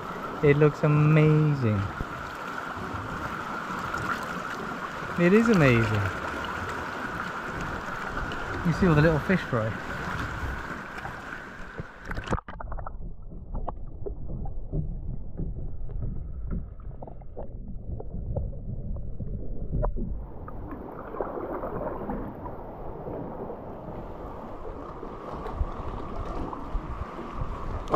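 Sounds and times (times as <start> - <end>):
hiss of water and wind: 0.0 - 12.2, 20.1 - 27.9
muffled underwater rumble: 9.7 - 27.9.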